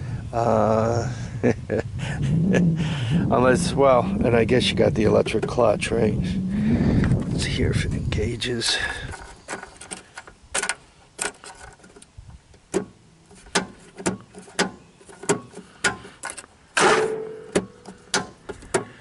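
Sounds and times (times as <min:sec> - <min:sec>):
ignition key rattling: 0:08.8 - 0:16.5.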